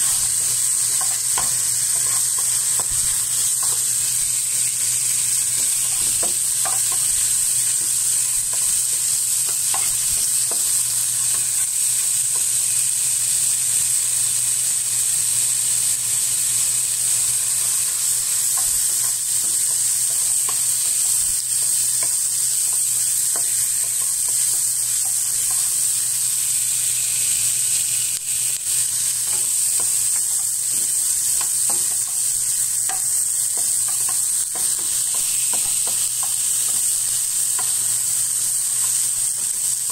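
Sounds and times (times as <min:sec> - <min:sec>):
spatula scraping a pan: 0:00.0 - 0:12.1
meat sizzling in a frying pan: 0:00.0 - 0:39.9.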